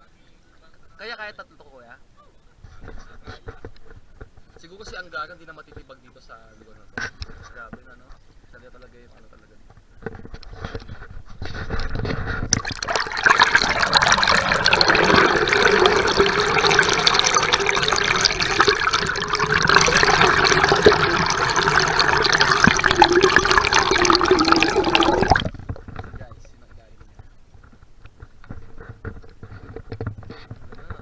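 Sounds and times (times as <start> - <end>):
water rushing and gurgling: 12.6 - 25.8.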